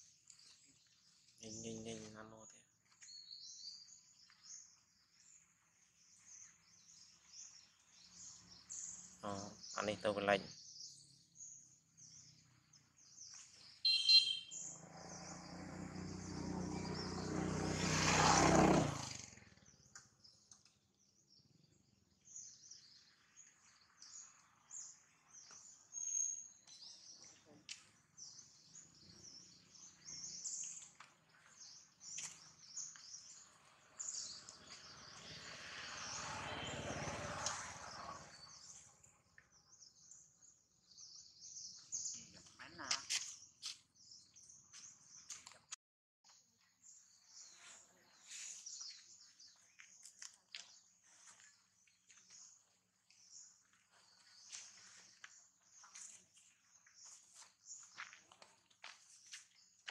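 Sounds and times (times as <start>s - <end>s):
birds chirping: 0.0s - 59.9s
short sharp call: 13.9s - 14.6s.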